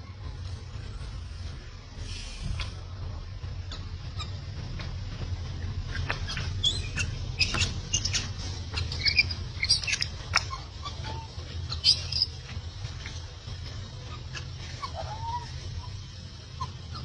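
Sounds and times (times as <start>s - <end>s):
baby monkey squeaking and chirping: 3.7s - 4.5s, 5.8s - 17.0s.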